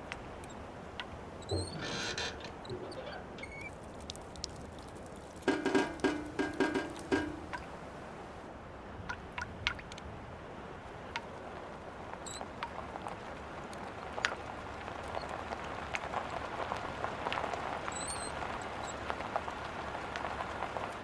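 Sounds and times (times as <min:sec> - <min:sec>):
water dripping into puddle: 0:03.4 - 0:07.9, 0:09.0 - 0:10.1.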